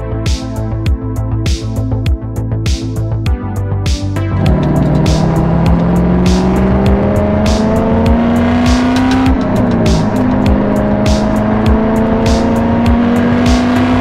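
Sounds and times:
background music with steady beat: 0.0s - 14.0s
car engine at highway speed: 4.4s - 14.0s.

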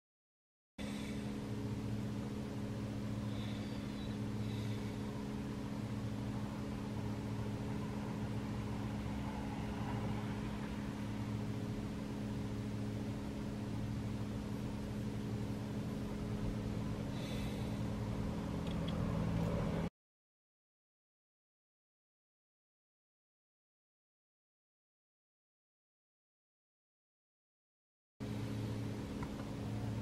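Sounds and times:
vehicle engine idling: 0.8s - 19.9s, 28.2s - 30.0s.

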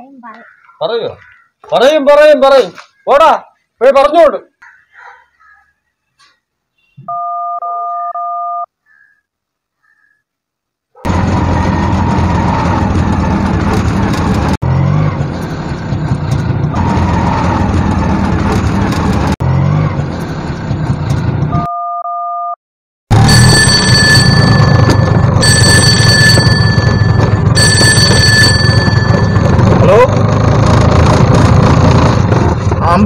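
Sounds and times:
two-tone electronic beep: 6.9s - 8.7s, 21.5s - 22.6s
phone ringtone: 7.1s - 8.7s, 23.2s - 29.6s
autorickshaw engine rumbling: 11.0s - 21.7s, 23.1s - 33.0s.

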